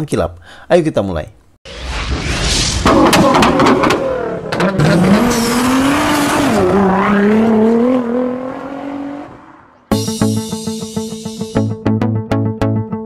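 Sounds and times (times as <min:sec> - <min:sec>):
car engine revving: 0:02.8 - 0:09.9
plucked-string music: 0:09.9 - 0:13.0.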